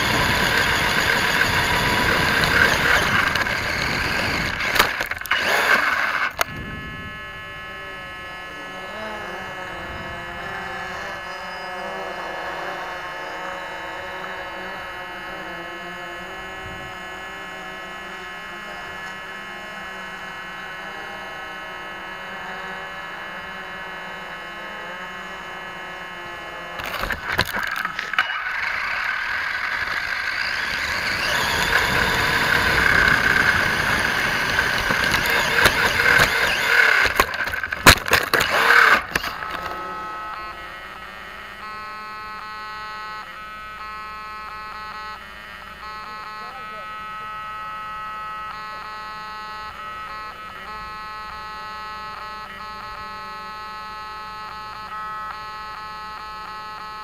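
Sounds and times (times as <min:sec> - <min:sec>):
tires rattling over gravel: 0:00.0 - 0:06.5, 0:26.8 - 0:39.8
electric motor whining: 0:00.0 - 0:57.0
steady electronic hum: 0:00.0 - 0:57.0.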